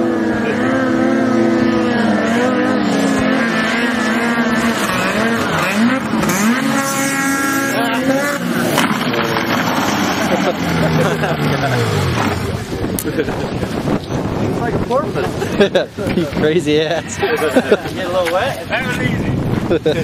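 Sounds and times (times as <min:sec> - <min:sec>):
snowmobile engine at high revs: 0:00.0 - 0:15.8.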